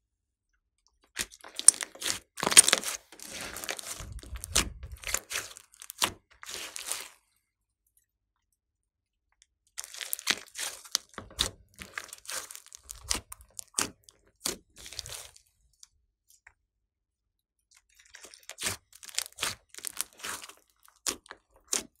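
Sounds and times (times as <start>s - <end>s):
slime squishing and popping: 1.2s - 7.2s, 9.8s - 15.4s, 18.0s - 22.0s.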